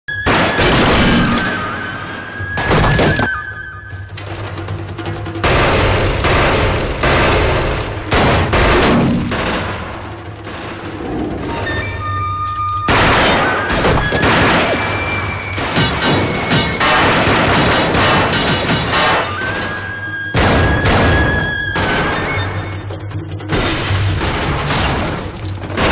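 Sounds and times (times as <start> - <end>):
gunshots in volleys: 0.1 - 2.0, 5.3 - 11.6, 12.9 - 22.6, 23.5 - 25.9
film score of held notes: 0.1 - 25.9.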